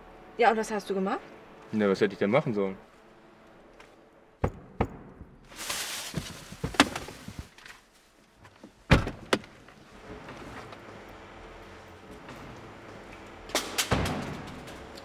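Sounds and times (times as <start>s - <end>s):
car doors slamming shut: 8.9s - 9.4s.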